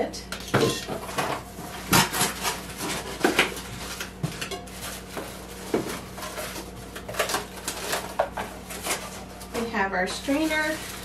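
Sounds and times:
cardboard and plastic rustling: 0.4s - 11.0s.

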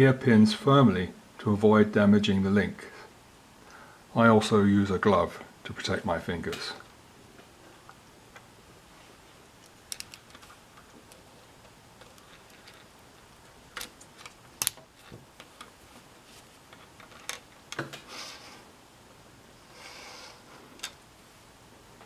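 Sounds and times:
plastic parts clicking and tapping: 9.6s - 11.2s.

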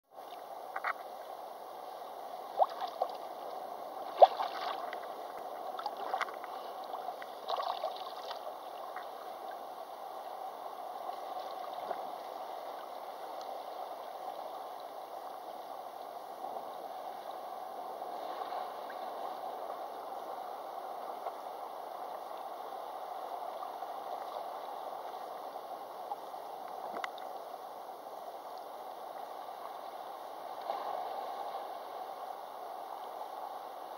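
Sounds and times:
seawater sloshing and gurgling: 2.5s - 3.2s, 4.0s - 9.2s.

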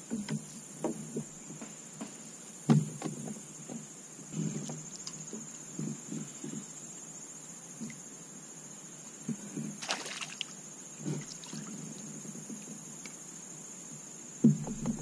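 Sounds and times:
high insect drone: 0.0s - 15.0s
knocks on plastic kayak: 0.1s - 3.8s, 14.4s - 15.0s.

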